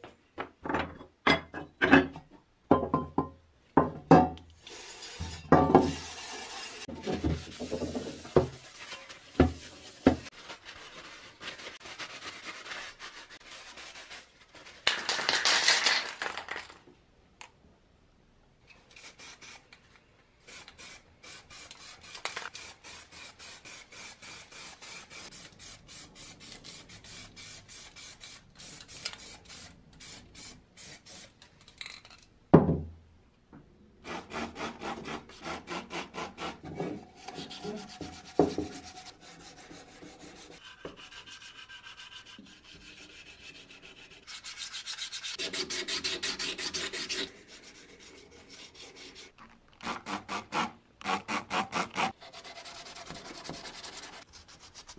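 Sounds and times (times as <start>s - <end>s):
sanding metal by hand: 4.8s - 10.4s, 37.3s - 49.3s.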